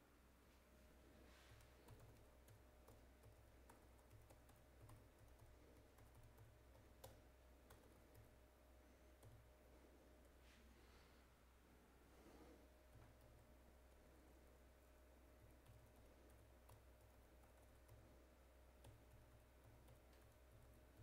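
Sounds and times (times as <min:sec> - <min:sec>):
low steady hum: 0:00.0 - 0:21.0
computer keyboard typing: 0:01.6 - 0:08.4, 0:09.2 - 0:09.5, 0:15.4 - 0:21.0.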